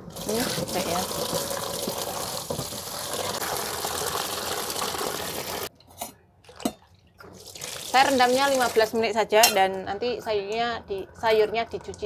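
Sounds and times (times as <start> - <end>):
water running from a tap: 0.0 - 5.7, 7.4 - 8.9.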